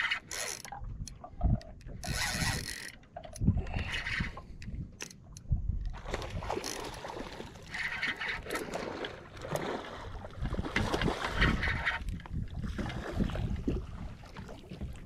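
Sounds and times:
fishing reel being cranked: 0.0 - 4.4, 6.6 - 6.9
water sloshing: 0.0 - 15.0
wind on microphone: 0.0 - 15.0.

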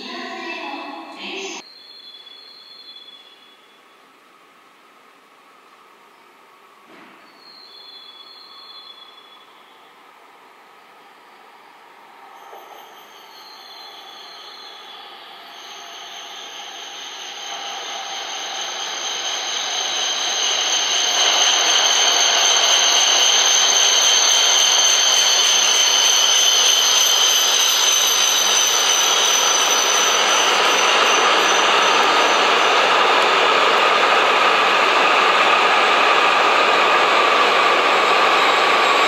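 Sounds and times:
train rushing past: 7.6 - 39.0
high-pitched whine: 12.2 - 39.0.

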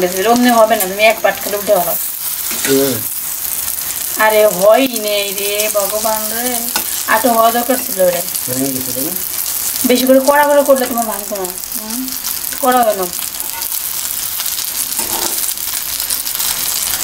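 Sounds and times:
omelette sizzling in oil: 0.0 - 17.0
metal spatula in pan: 0.6 - 4.1, 13.3 - 15.8.

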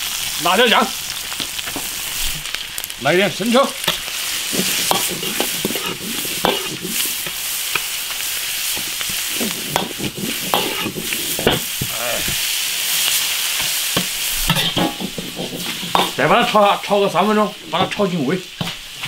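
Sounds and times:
food sizzling in hot oil: 0.0 - 19.0
metal ladle scraping wok: 3.9 - 7.9, 8.7 - 12.5, 13.6 - 16.4.

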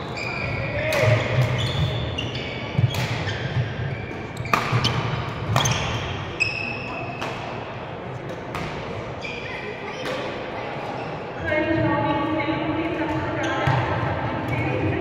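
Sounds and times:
sneakers squeaking on court: 0.0 - 7.6, 8.5 - 10.1, 13.1 - 14.7
rackets hitting shuttlecock: 0.8 - 2.0, 2.7 - 6.2, 7.2 - 7.6, 8.2 - 9.0.

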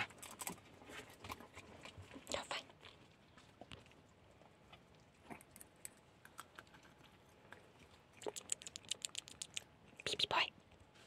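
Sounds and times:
dog eating clicks: 6.3 - 10.2.

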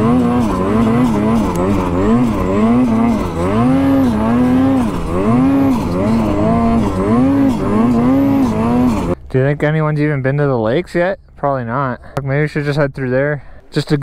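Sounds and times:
snowmobile engine revving: 0.0 - 9.2.

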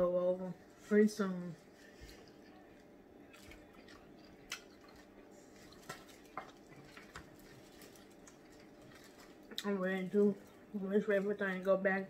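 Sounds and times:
crab shells handled over foil pans: 5.5 - 9.5.

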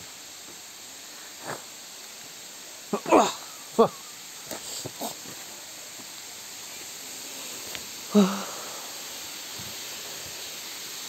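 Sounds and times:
waterfall rushing: 0.0 - 11.0
person exclaiming: 3.0 - 4.0, 8.1 - 8.5.

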